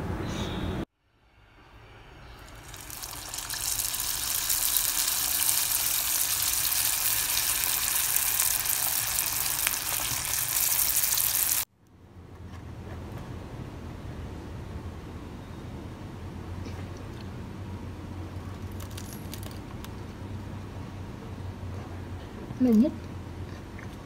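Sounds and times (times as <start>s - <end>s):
spring rolls sizzling in oil: 2.5s - 11.7s.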